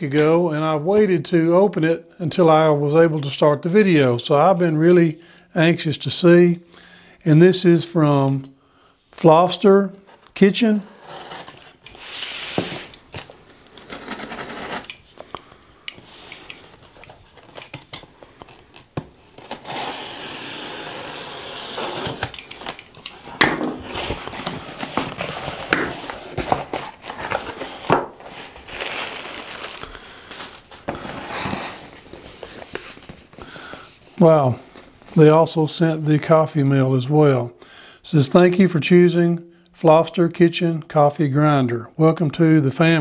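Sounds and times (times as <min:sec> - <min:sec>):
cardboard tearing and rustling: 0:10.9 - 0:15.2, 0:16.7 - 0:33.4
knife slitting packing tape: 0:13.8 - 0:15.1, 0:18.7 - 0:26.2.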